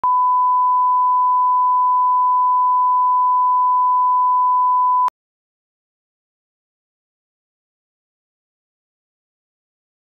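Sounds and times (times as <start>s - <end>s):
steady sine tone: 0.0s - 5.1s.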